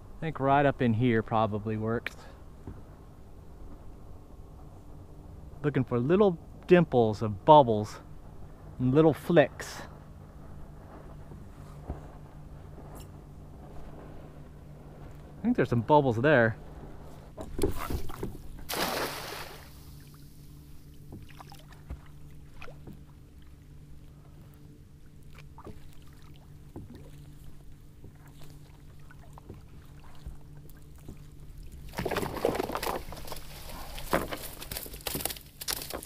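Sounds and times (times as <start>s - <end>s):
net splashing onto water: 17.8s - 20.2s
water pouring off net: 18.7s - 20.0s.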